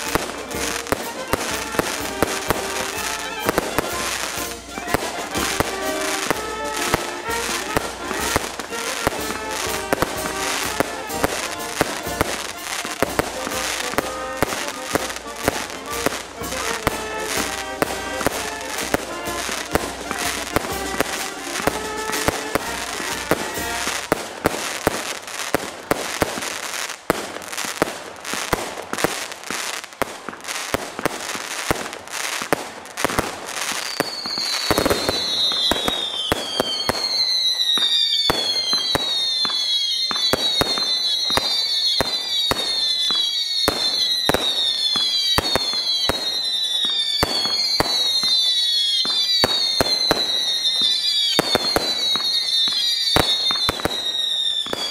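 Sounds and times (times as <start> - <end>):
falling firework whistles: 0.0 - 54.9
fireworks bangs and crackles: 0.0 - 54.9.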